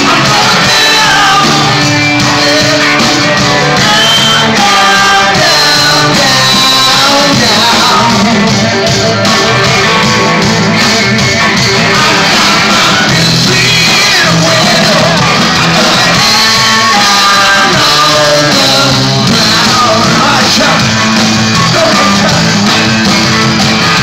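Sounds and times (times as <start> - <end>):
live rock band playing: 0.0 - 24.0
person singing: 0.0 - 24.0.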